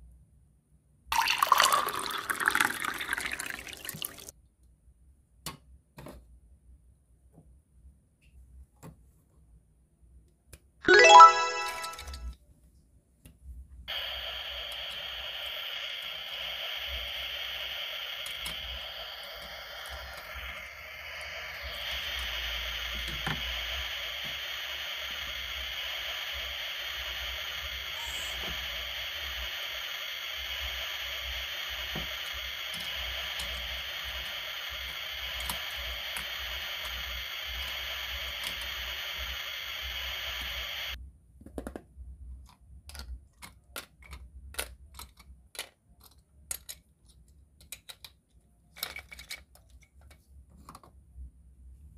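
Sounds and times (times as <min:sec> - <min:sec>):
electronic sizzling sound effect: 0:10.9 - 0:12.3, 0:13.9 - 0:41.0.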